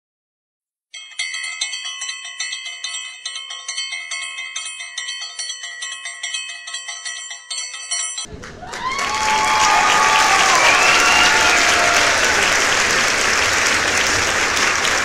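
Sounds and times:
bright bell tones: 0.9s - 8.4s
applause: 8.3s - 15.0s.

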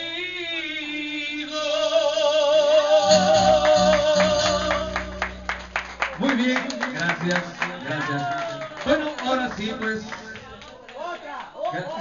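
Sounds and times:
man singing with vibrato: 0.0s - 5.6s
band accompaniment: 3.1s - 6.0s.

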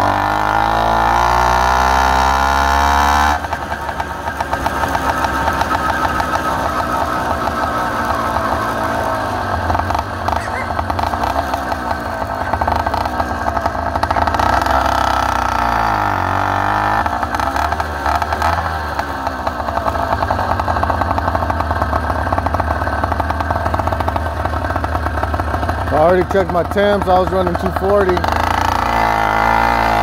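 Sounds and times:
two-stroke bicycle engine running: 0.0s - 30.0s.

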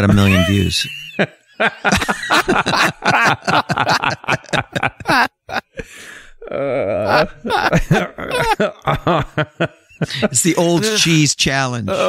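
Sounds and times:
men laughing hard: 0.0s - 11.2s
breathy gasp: 5.8s - 6.4s.

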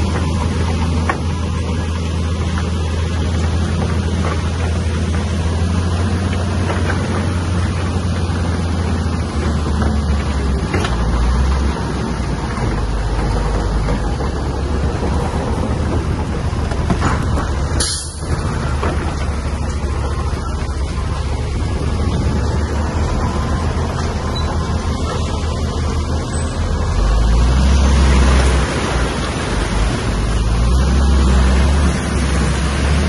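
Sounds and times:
bulldozer diesel engine running: 0.0s - 33.0s.

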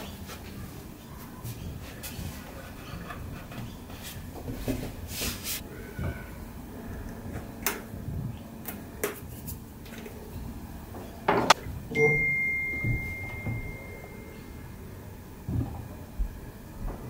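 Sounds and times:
faint high tone: 11.9s - 14.9s.

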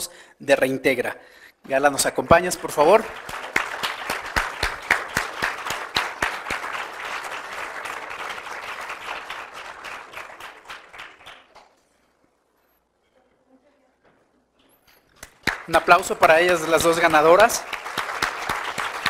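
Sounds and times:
audience applauding: 2.4s - 11.8s, 15.2s - 19.0s.

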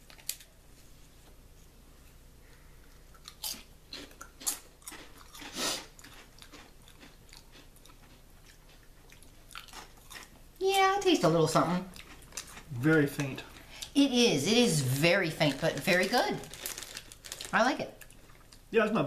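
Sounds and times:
crisp chip crunches: 14.7s - 18.6s.

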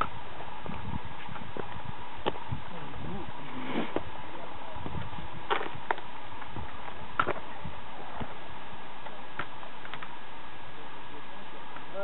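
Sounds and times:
steady hiss: 0.0s - 12.0s
crutch and feet tapping on stone: 5.5s - 7.4s.

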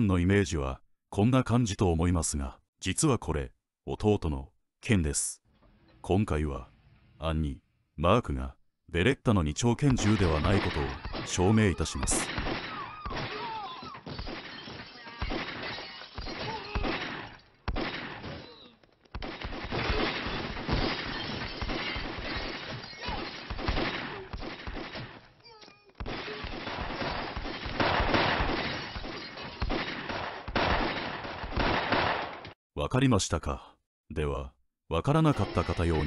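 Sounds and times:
pistol shots: 10.0s - 25.2s, 26.0s - 32.6s
people shouting: 10.6s - 14.1s, 16.3s - 17.1s, 22.7s - 24.4s
glass and crockery smashing: 19.8s - 23.5s.

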